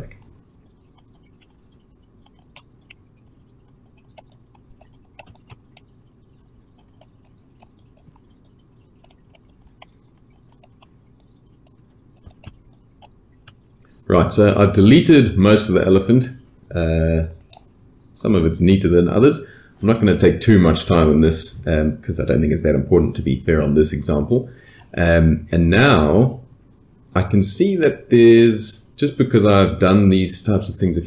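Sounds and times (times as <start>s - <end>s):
computer mouse clicking: 0.0s - 13.7s, 17.4s - 17.7s
faint low room hum: 0.0s - 31.0s.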